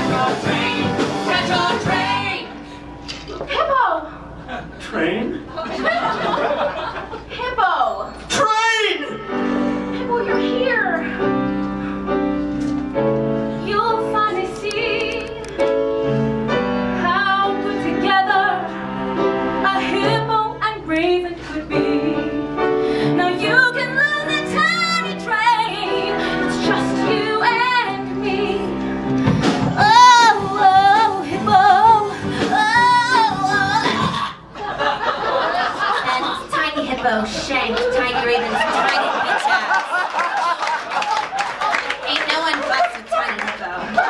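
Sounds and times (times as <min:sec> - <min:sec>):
piano accompaniment: 0:00.0 - 0:02.6, 0:09.1 - 0:34.3
woman singing with vibrato: 0:00.0 - 0:02.8, 0:13.6 - 0:15.5, 0:17.0 - 0:18.8, 0:19.6 - 0:28.8, 0:29.6 - 0:34.4.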